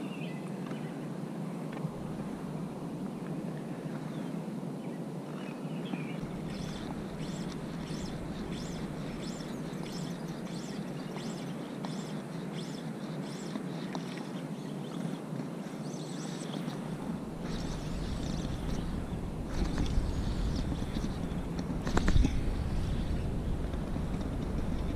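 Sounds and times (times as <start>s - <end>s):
bird chirping: 5.5s - 15.0s
low background rumble: 6.2s - 11.5s, 16.7s - 24.9s.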